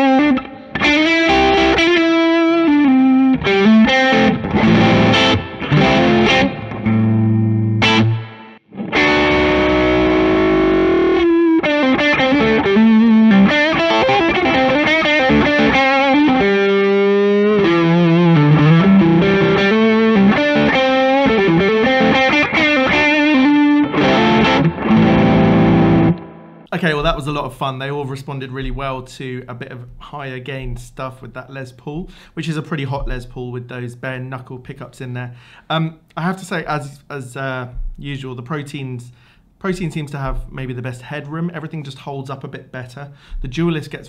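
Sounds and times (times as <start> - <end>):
distorted electric guitar: 0.0 - 27.3.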